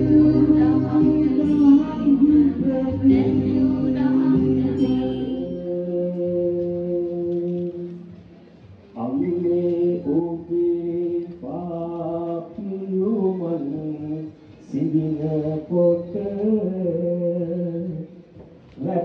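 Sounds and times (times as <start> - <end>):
person chanting: 0.0 - 8.2.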